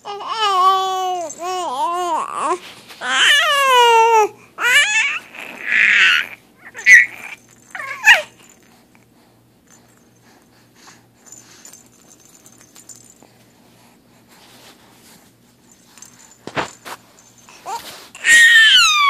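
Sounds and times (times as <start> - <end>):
soft infant vocal noises: 0.0 - 8.4
infant squealing: 0.1 - 8.4, 17.6 - 19.0.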